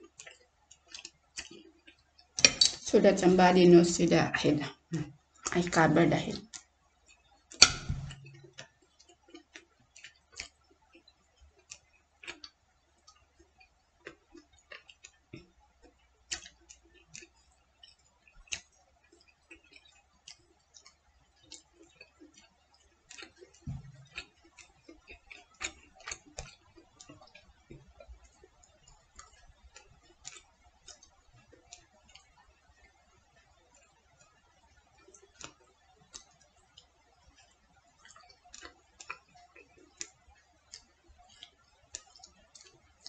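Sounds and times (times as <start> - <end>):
chopsticks tapping plate and bowl: 2.4 - 2.8, 7.5 - 8.6.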